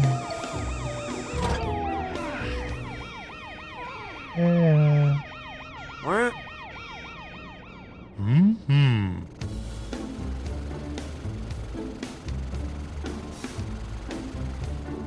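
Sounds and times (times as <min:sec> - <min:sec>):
siren in yelp mode: 0:00.0 - 0:08.2.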